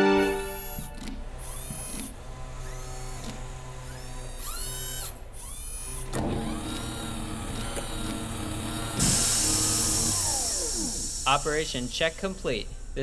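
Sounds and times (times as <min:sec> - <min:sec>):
servo whirs: 0:00.0 - 0:13.0
steady hum with held tones: 0:00.0 - 0:13.0
burst of hissing air: 0:09.0 - 0:12.3.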